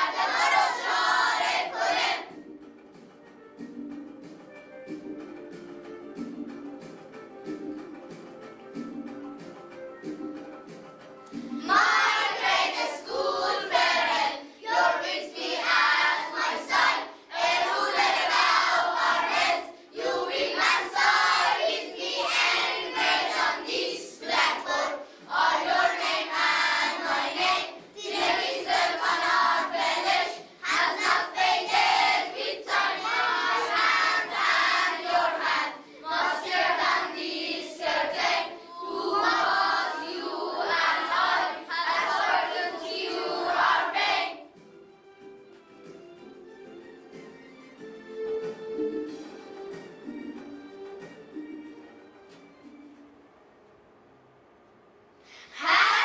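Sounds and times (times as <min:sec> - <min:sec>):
boys singing in unison: 0:00.0 - 0:02.2, 0:11.6 - 0:44.3.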